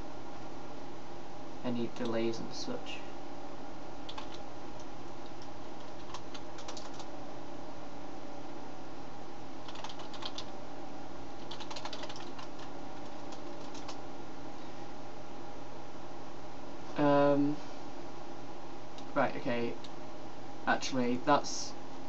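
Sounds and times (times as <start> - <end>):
steady hum: 0.0 - 22.0
computer keyboard typing: 4.0 - 7.1, 9.6 - 10.5, 11.4 - 14.0.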